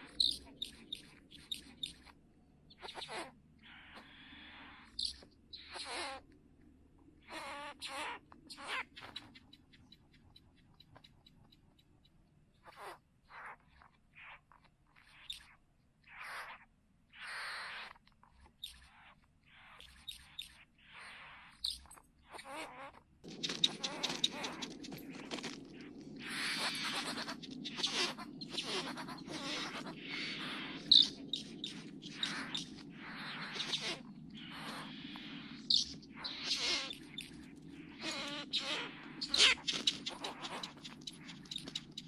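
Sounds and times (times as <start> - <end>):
birds rasping calls: 0.0 - 6.2, 7.2 - 11.9, 23.2 - 42.0
low background rumble: 23.1 - 42.0.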